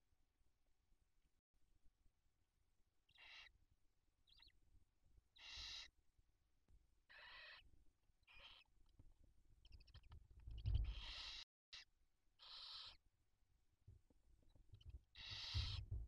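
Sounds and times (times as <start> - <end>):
owl chicks hissing: 5.4 - 5.9, 10.8 - 11.4, 12.4 - 13.0, 15.2 - 15.9.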